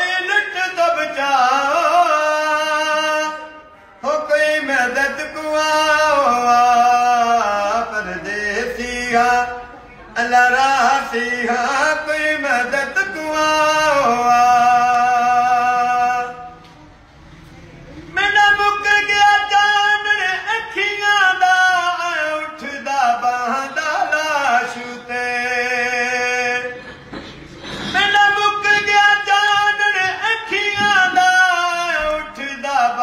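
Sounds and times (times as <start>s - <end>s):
man singing a lament: 0.0s - 16.6s, 18.1s - 26.9s, 27.8s - 33.0s.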